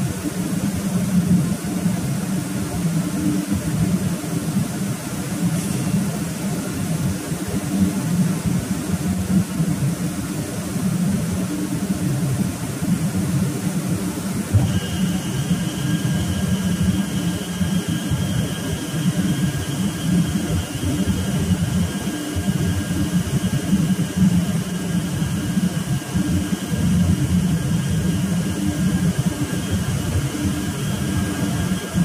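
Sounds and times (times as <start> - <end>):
ship machinery drone: 0.0 - 32.0
faint high whine: 13.5 - 32.0.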